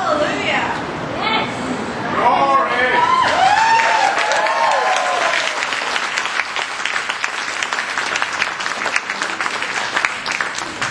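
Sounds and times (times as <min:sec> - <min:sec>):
crowd applauding: 0:03.0 - 0:10.9.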